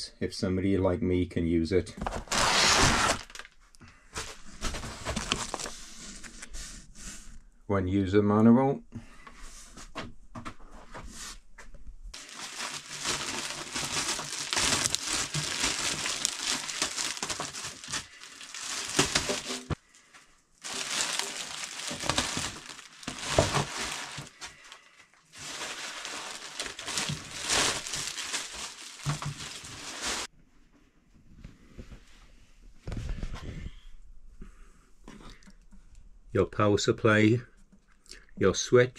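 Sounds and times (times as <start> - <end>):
plastic wrapping crinkling: 2.3 - 3.6, 4.4 - 5.8, 12.2 - 30.3.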